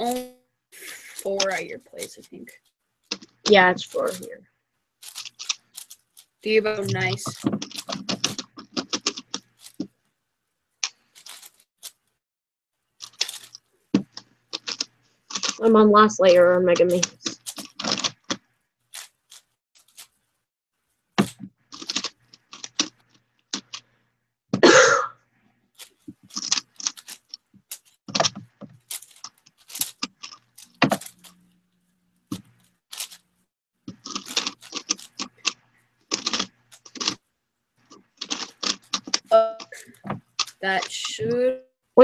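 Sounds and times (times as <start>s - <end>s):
plastic puzzle clicks: 33.9s - 37.2s.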